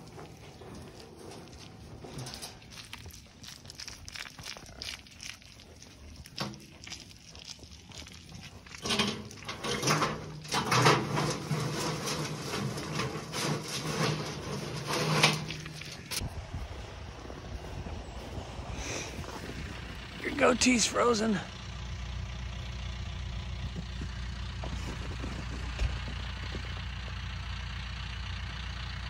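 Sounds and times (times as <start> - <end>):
loud rough noise: 8.8 - 16.5
footsteps crunching in snow: 14.0 - 20.0, 23.6 - 26.8.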